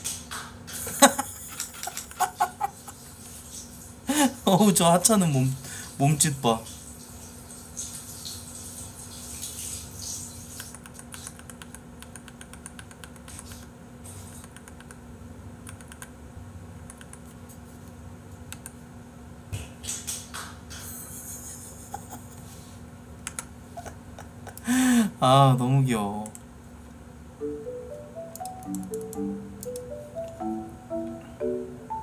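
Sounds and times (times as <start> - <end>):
faint steady hum: 0.0 - 32.0
keyboard typing: 10.7 - 13.6, 15.6 - 16.1, 16.9 - 17.3, 28.2 - 31.2.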